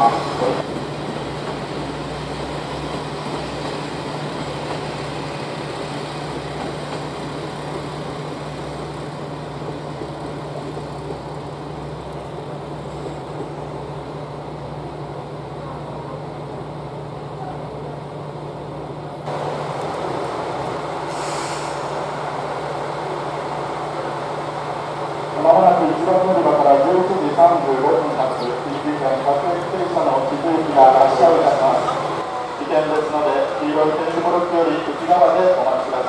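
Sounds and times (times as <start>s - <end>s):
diesel train engine rumble: 0.0s - 36.0s.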